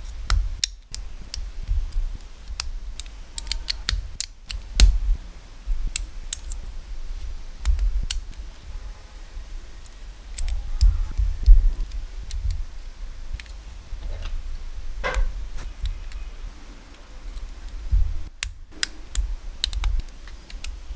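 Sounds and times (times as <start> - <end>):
plastic bricks clicking: 0.6 - 4.9, 17.3 - 20.8.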